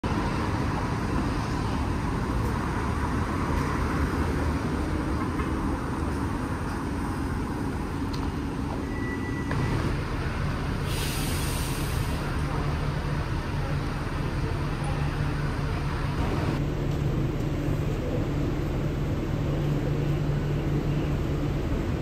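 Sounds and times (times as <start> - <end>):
road traffic rumble: 0.0 - 22.0
short high beep: 8.8 - 9.6.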